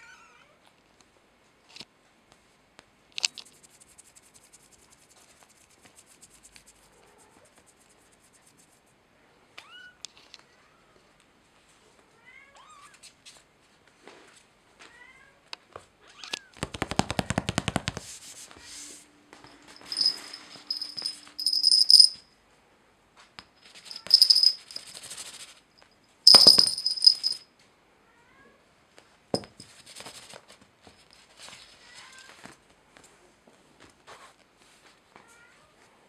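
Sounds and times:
plastic toy rattling: 19.9s - 22.2s, 23.7s - 25.1s, 26.3s - 27.4s.

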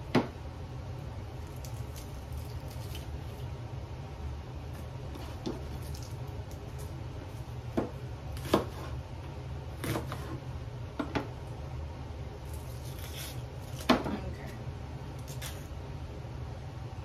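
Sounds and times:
steady low hum: 0.0s - 17.0s
knife chopping on cutting board: 7.7s - 9.0s, 9.8s - 10.4s.

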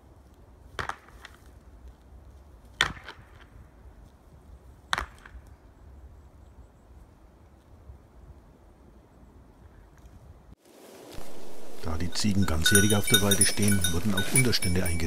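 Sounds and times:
goats clashing horns: 11.2s - 15.0s.

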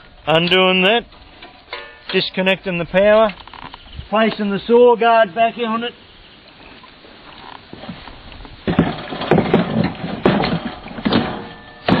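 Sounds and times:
metal clattering and knocks: 8.6s - 12.0s.

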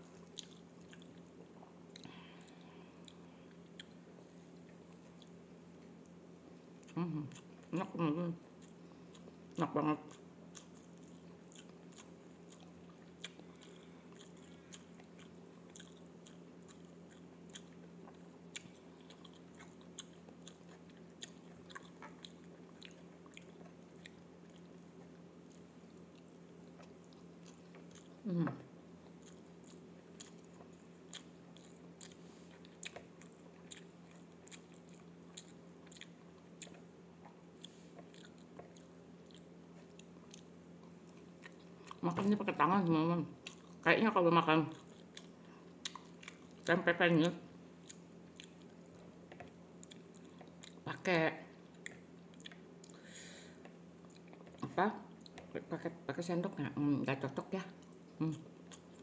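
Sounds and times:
soft chewing: 0.0s - 59.0s
steady low hum: 0.0s - 59.0s.

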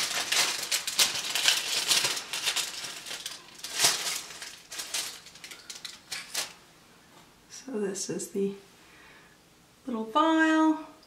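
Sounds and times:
tissue paper crinkling and tearing: 0.0s - 6.6s.

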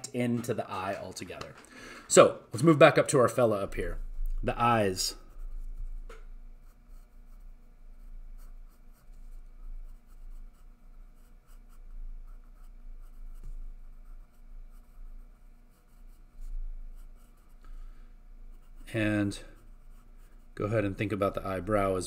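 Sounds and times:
low steady hum: 0.0s - 22.0s
pencil scratching on paper: 5.2s - 17.9s, 18.5s - 21.0s.

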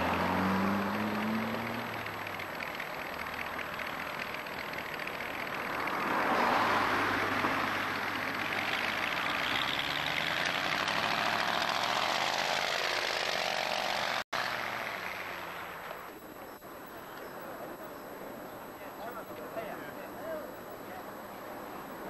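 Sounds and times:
vehicle engine passing: 0.0s - 16.1s.

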